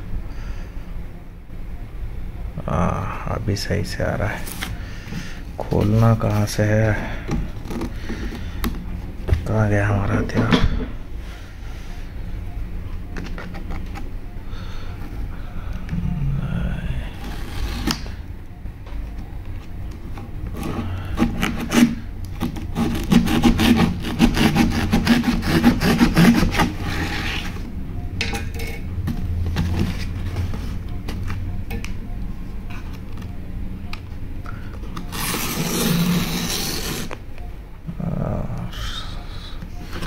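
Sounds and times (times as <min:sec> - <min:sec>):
tool scraping cardboard: 0:20.5 - 0:27.6, 0:35.1 - 0:37.1
cardboard tearing: 0:21.2 - 0:27.6, 0:35.1 - 0:37.1.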